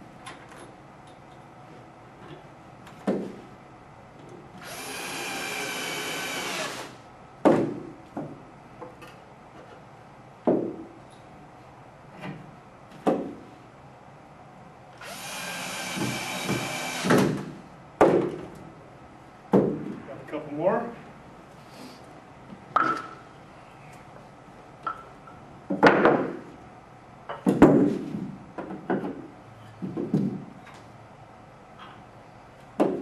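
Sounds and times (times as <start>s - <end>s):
cordless drill driving screws: 4.6s - 7.0s, 15.0s - 17.2s.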